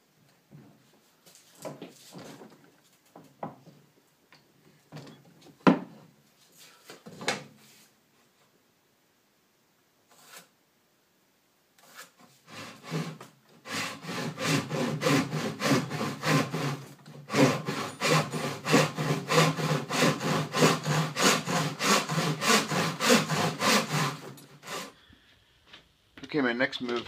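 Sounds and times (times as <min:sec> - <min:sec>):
handsaw cutting wood: 0:11.8 - 0:25.0.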